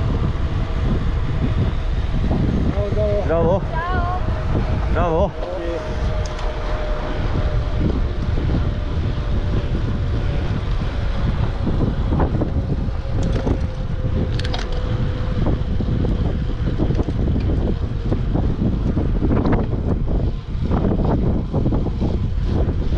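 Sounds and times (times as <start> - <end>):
bike riding rumble: 0.0 - 22.9
wind buffeting microphone: 0.0 - 22.9
sharp clicks and rattles: 12.2 - 15.0.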